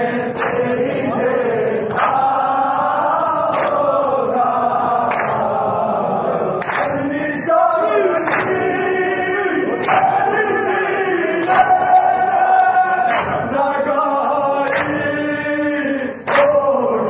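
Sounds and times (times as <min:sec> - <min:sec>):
men chanting in unison: 0:00.0 - 0:17.0
chest-beating slaps: 0:00.3 - 0:00.7, 0:01.9 - 0:02.3, 0:03.5 - 0:03.9, 0:05.1 - 0:05.5, 0:06.6 - 0:07.0, 0:08.2 - 0:08.6, 0:09.8 - 0:10.2, 0:13.0 - 0:13.5, 0:14.6 - 0:15.0, 0:16.3 - 0:16.6.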